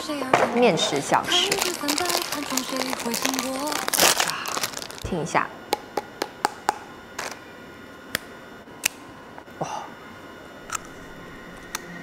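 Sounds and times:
crisp biscuit cracking: 1.2 - 5.1.

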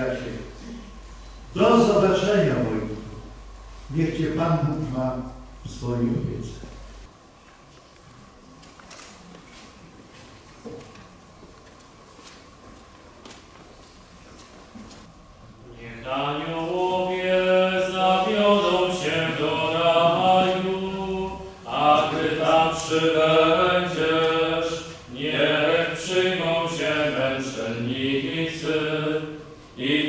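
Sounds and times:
voices singing slow chant: 15.6 - 30.0.

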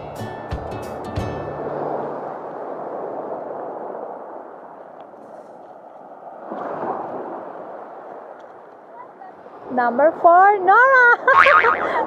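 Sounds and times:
sea waves washing onto pebbles: 1.5 - 9.7.

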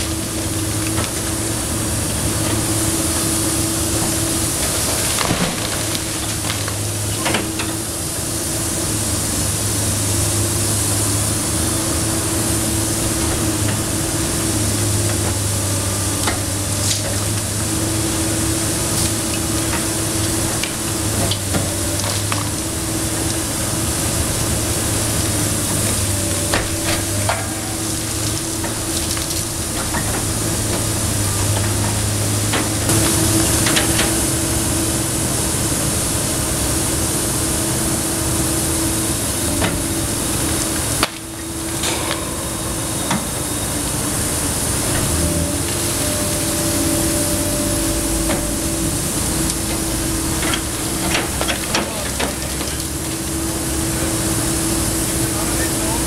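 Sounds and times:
excavator diesel engine running: 0.0 - 56.0
masonry cracking and falling: 4.6 - 7.6.

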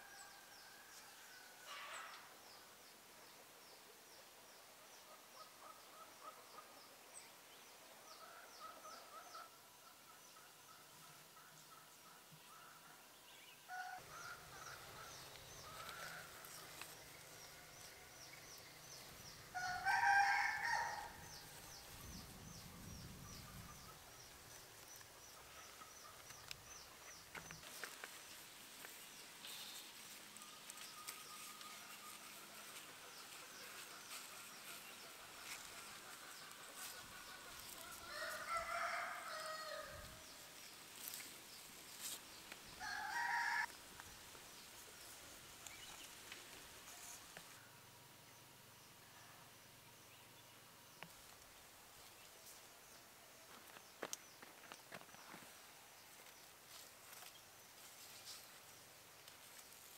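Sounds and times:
rooster crowing: 19.5 - 21.4, 37.7 - 40.1, 42.8 - 43.7.

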